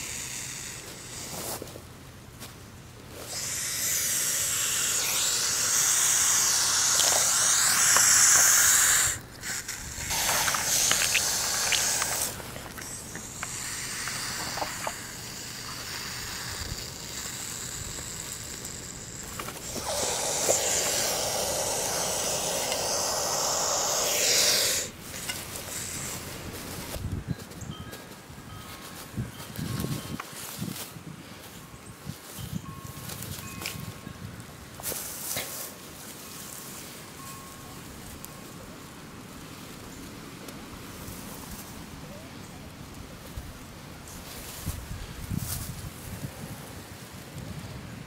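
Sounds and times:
snake hissing: 0:00.0 - 0:01.7, 0:03.1 - 0:27.0.

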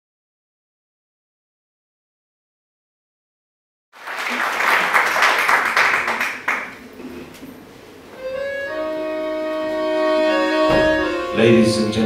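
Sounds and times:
live band playing: 0:08.2 - 0:12.0.

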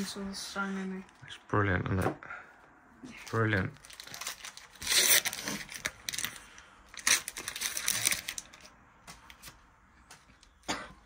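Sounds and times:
foil wrapper crinkling: 0:03.3 - 0:08.8.

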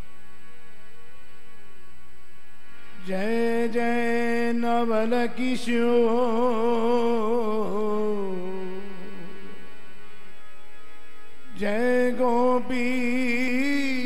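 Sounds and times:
man singing a devotional song: 0:02.8 - 0:10.2, 0:11.5 - 0:14.0.

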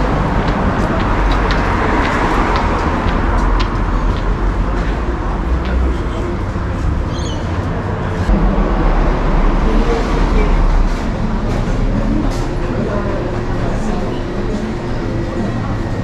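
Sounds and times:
passing road vehicles rumble: 0:00.0 - 0:16.0.

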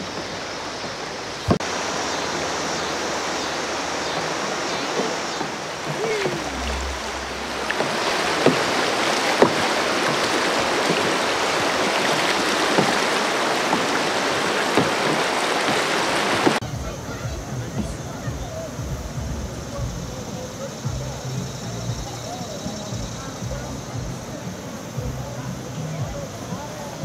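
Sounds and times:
river water rushing over rocks: 0:00.0 - 0:27.0.

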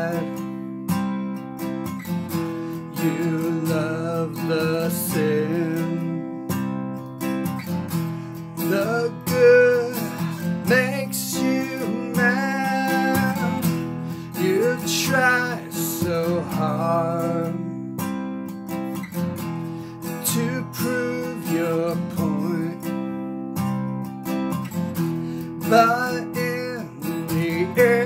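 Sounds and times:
man singing: 0:00.0 - 0:00.9, 0:02.4 - 0:06.9, 0:08.4 - 0:18.2, 0:19.8 - 0:23.4, 0:25.4 - 0:28.0
acoustic guitar strumming: 0:00.0 - 0:28.0.

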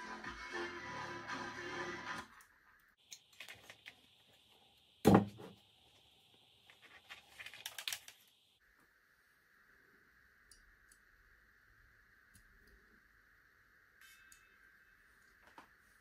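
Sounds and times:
wires clicking and rustling: 0:06.6 - 0:08.4.

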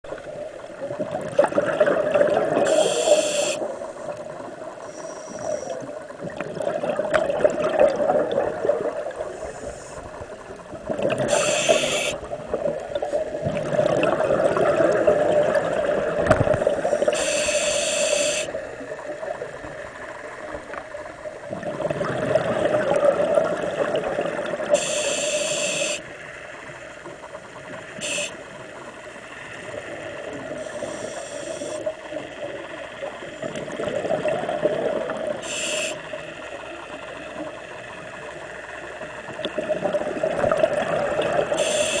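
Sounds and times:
bubbles rushing and gurgling: 0:00.1 - 0:02.9, 0:05.9 - 0:09.4, 0:10.1 - 0:17.2, 0:18.6 - 0:24.8, 0:33.4 - 0:35.7, 0:37.0 - 0:41.8
regulator hissing inhalations: 0:02.7 - 0:03.7, 0:11.3 - 0:12.2, 0:16.9 - 0:18.6, 0:24.8 - 0:26.1, 0:28.0 - 0:28.4, 0:30.6 - 0:31.9, 0:35.4 - 0:36.1, 0:41.6 - 0:42.0.

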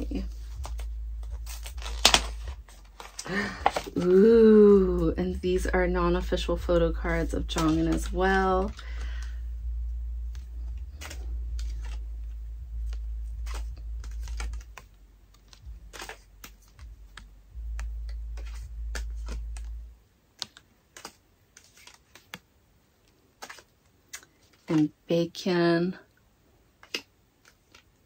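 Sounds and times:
low steady hum: 0:00.0 - 0:22.0
clicks and taps of cards and packaging: 0:00.1 - 0:04.2, 0:07.2 - 0:09.3, 0:10.3 - 0:12.0, 0:12.8 - 0:25.0, 0:26.8 - 0:28.0.

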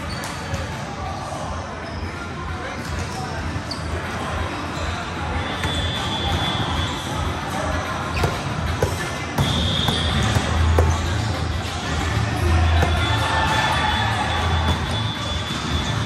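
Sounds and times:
volleyball bouncing on gym floor: 0:05.6 - 0:06.9, 0:08.1 - 0:12.0, 0:12.6 - 0:16.0.

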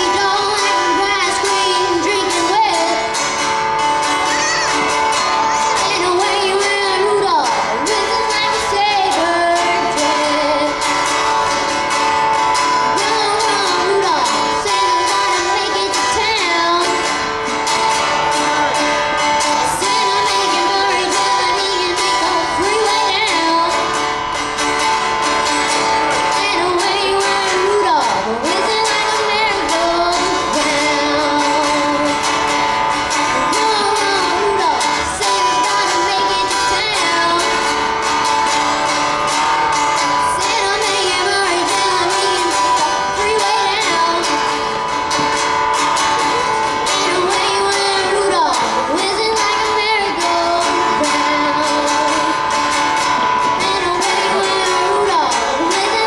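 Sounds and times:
acoustic guitar: 0:00.0 - 0:56.0
girl singing: 0:00.0 - 0:56.0.

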